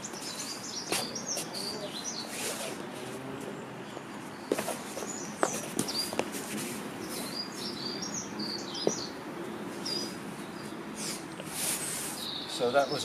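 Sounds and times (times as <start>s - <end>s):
songbirds chirping: 0.0s - 13.0s
feet scuffing on mats: 4.4s - 7.7s.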